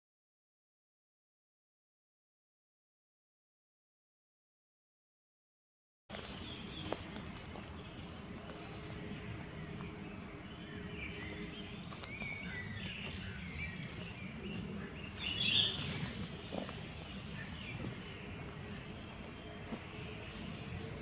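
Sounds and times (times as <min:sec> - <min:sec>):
low background noise: 0:06.1 - 0:21.0
nightingale singing: 0:09.7 - 0:18.1.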